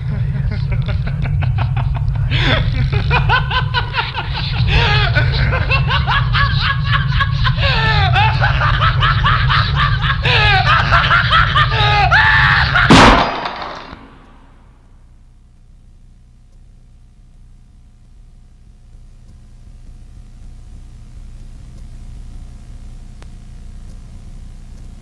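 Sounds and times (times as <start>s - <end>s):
person laughing: 0.0s - 14.4s
steady low hum: 0.0s - 25.0s
loud bang: 12.9s - 14.6s.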